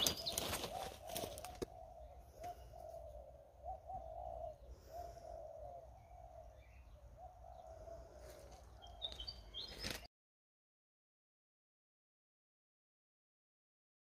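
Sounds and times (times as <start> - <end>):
high bird chirps: 0.0 - 1.4
dove cooing: 0.0 - 10.0.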